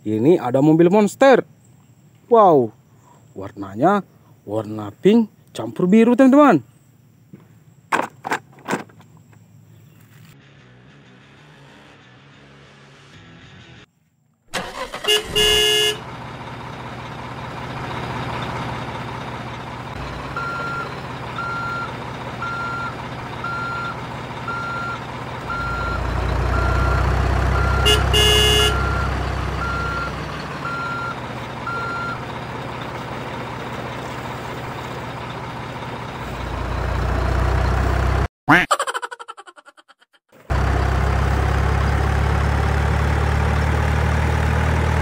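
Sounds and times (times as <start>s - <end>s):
truck engine rumble: 7.4s - 13.9s, 14.5s - 38.3s, 40.4s - 45.0s
truck horn blasts: 14.6s - 16.1s, 23.5s - 32.2s
reversing beeper: 20.0s - 32.3s.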